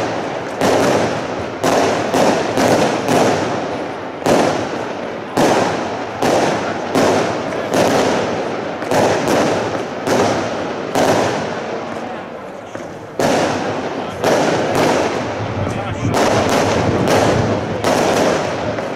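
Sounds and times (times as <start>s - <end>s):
fireworks bangs with echo: 0.0s - 18.9s.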